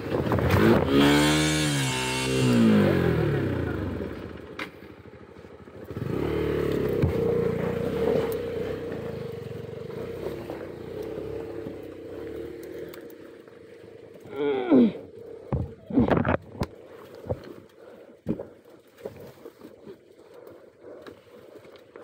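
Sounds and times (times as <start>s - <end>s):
motorcycle engine revving: 0.0s - 14.8s
wheel spinning in mud: 0.0s - 17.9s.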